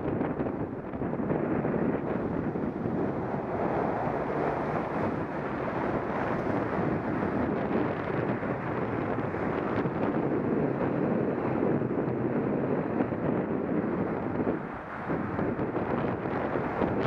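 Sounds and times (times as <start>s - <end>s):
wind rumbling on microphone: 0.0s - 17.0s.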